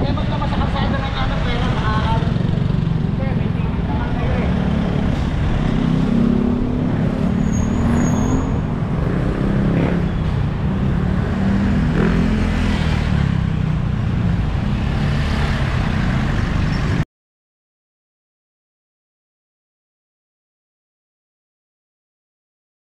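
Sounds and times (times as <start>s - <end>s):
vehicle engines rumbling: 0.0s - 17.0s
vehicles passing: 0.0s - 17.0s.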